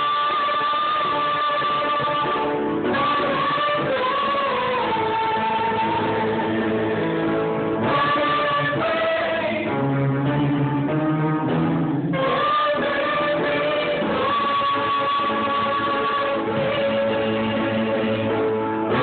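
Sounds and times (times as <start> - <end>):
group of singers: 0.0 - 10.7, 12.0 - 19.0.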